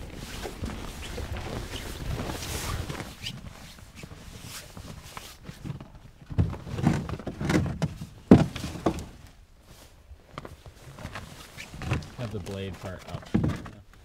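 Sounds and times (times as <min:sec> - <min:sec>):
dull thumps and knocks: 0:05.6 - 0:09.2, 0:13.1 - 0:14.0.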